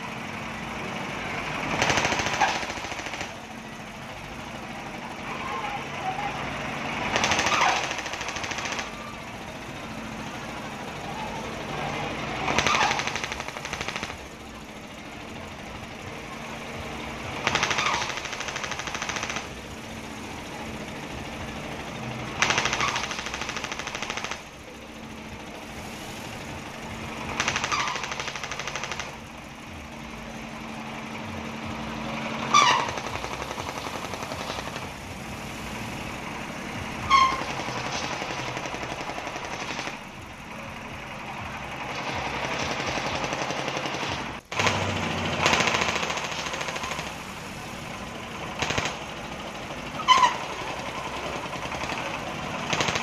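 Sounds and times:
diesel engine surging and rattling: 0.0 - 53.0.

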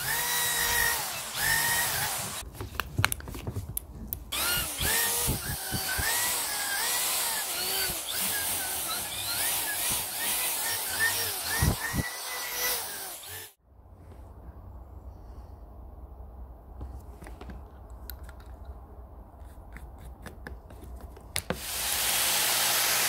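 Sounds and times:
power drill with wire brush on iron: 0.0 - 2.4, 4.3 - 13.6, 21.4 - 23.0.

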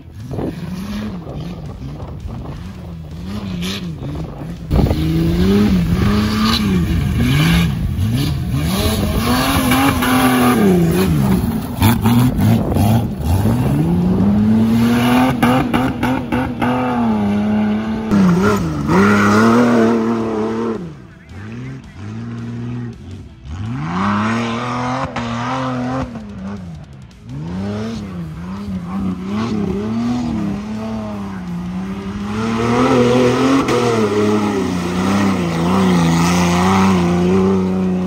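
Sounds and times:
race vehicle engine revving: 0.0 - 38.0.

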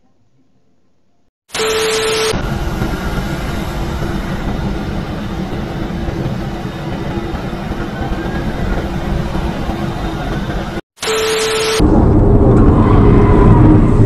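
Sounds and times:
static hiss with beep: 1.5 - 2.4, 11.0 - 11.8
airport apron rumble and hiss: 2.4 - 10.8.

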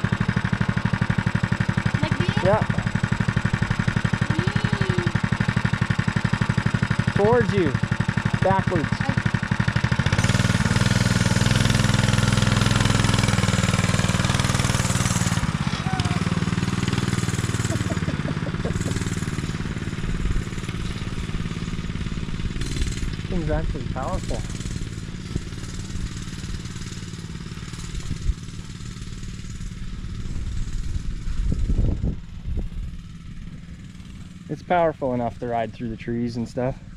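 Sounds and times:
mini bike engine revving: 0.0 - 36.9.

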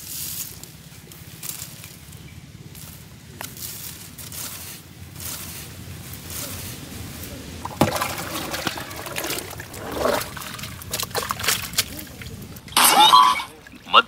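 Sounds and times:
hands rustling dry rice in pot: 0.0 - 12.6
rice swished by hand in water: 3.9 - 12.5
water pouring: 7.6 - 14.0.

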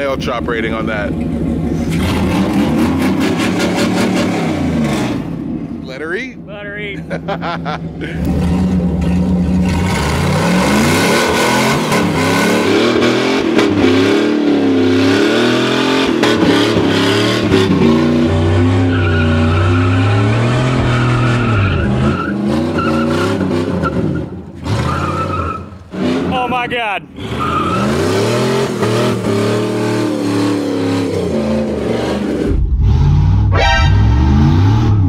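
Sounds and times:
engine revving hard: 1.8 - 5.3, 9.6 - 23.8, 27.2 - 35.0
tires squealing on asphalt: 8.2 - 35.0.

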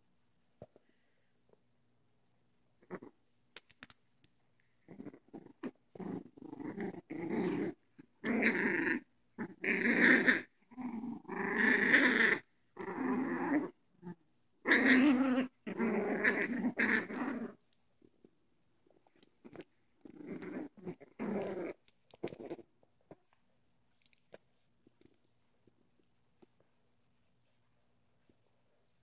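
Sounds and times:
puppies growling in play: 2.8 - 3.2, 4.8 - 17.7, 19.1 - 22.7.

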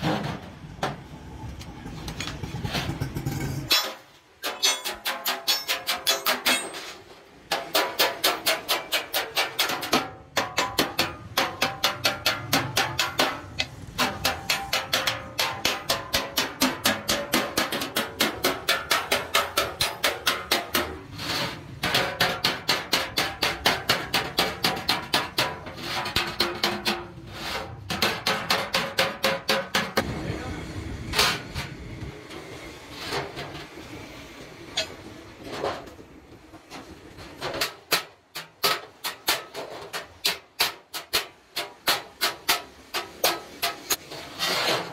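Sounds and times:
hammer striking metal can: 7.5 - 21.0, 27.9 - 30.0.

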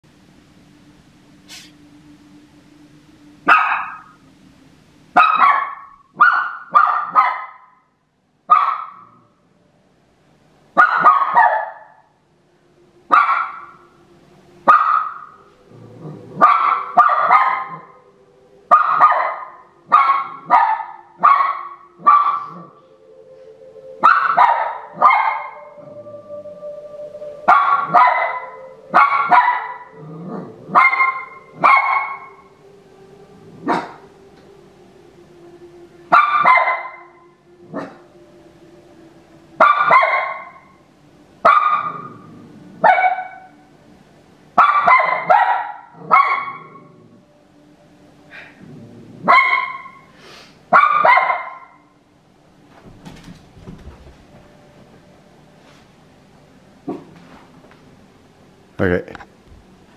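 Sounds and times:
dog barking: 3.5 - 4.1, 5.2 - 7.8, 8.5 - 9.2, 10.8 - 12.0, 13.1 - 13.7, 14.7 - 15.4, 16.4 - 18.0, 18.7 - 22.7, 24.0 - 25.6, 27.5 - 30.0, 30.7 - 32.4, 33.7 - 34.0, 36.1 - 37.1, 39.6 - 40.6, 41.4 - 42.2, 42.8 - 43.5, 44.6 - 46.8, 49.2 - 50.1, 50.7 - 51.8.

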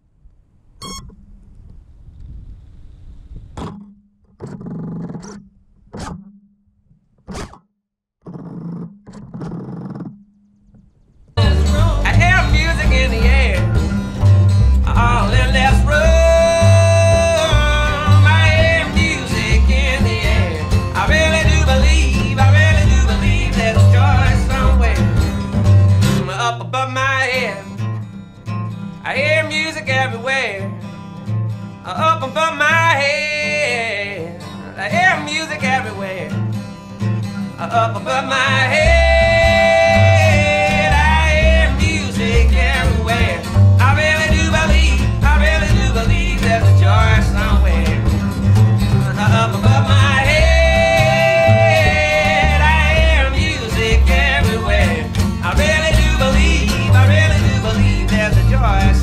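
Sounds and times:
acoustic guitar: 8.2 - 10.3, 11.4 - 59.0
bass line: 9.2 - 29.5, 37.1 - 59.0
person singing: 11.4 - 13.9, 14.8 - 25.2, 37.6 - 48.1, 49.1 - 59.0.

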